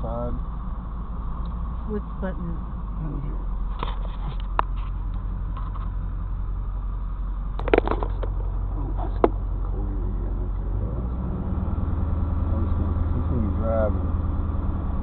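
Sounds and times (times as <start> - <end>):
truck rumbling on gravel: 0.0 - 15.0
short clattering rattle: 7.5 - 9.6.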